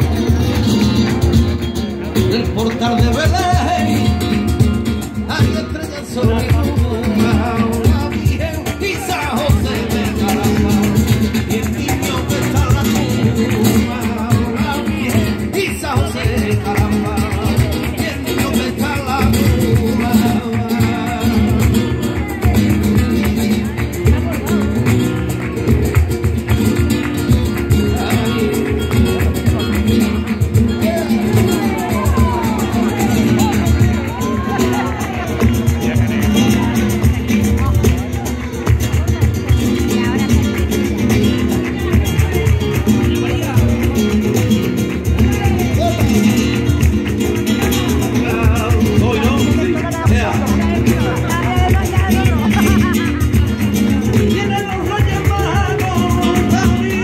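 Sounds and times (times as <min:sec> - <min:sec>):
rhythmic hand-clapping: 0:00.0 - 0:57.0
spanish guitar playing: 0:00.0 - 0:57.0
man singing through microphone: 0:02.2 - 0:22.5, 0:47.6 - 0:57.0.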